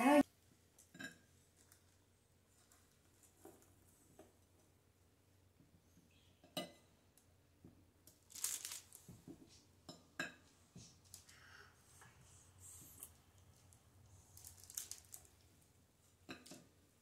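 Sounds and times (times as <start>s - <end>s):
parchment paper crinkle: 1.5s - 3.9s, 8.1s - 9.2s, 13.5s - 15.7s.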